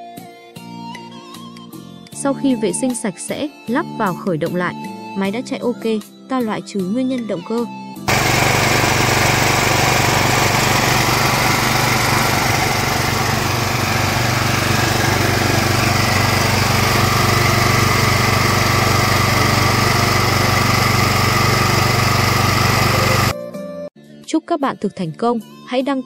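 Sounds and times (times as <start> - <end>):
generator engine running: 8.1 - 23.3.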